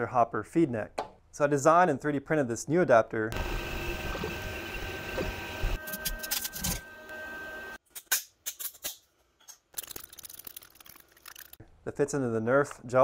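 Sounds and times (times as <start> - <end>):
stepper motor whine: 3.4 - 7.8
three-d printer humming: 3.4 - 7.8.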